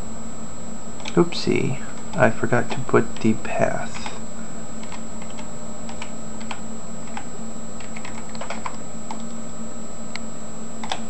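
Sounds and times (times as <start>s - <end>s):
background hum: 0.0s - 11.0s
faint high whine: 0.0s - 11.0s
keyboard keystrokes clicking: 4.8s - 9.4s, 10.8s - 11.0s.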